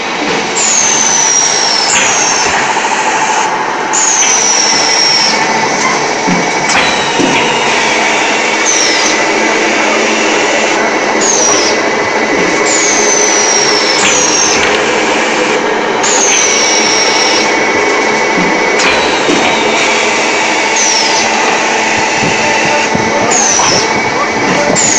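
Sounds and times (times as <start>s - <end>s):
machine mechanical din: 0.0s - 24.9s
high whistling tones: 0.6s - 5.4s, 6.7s - 11.8s, 12.7s - 14.7s, 18.8s - 23.9s.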